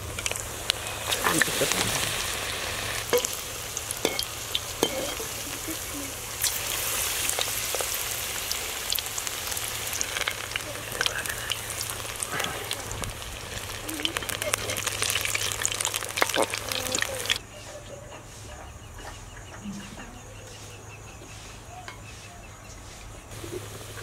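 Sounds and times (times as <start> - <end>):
food deep-frying in oil: 0.0 - 17.4, 23.3 - 24.0.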